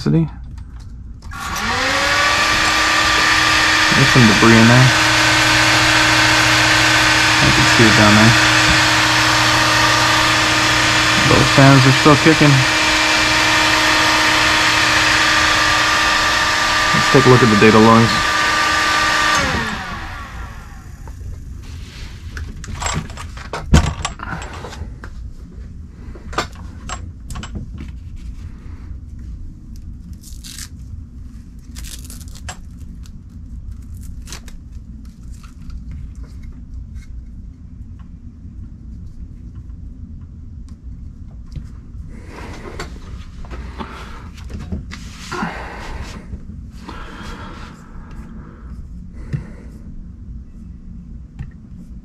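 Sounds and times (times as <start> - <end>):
steady low hum: 0.0 - 52.0
clicks and rustles of handling parts: 22.3 - 25.2.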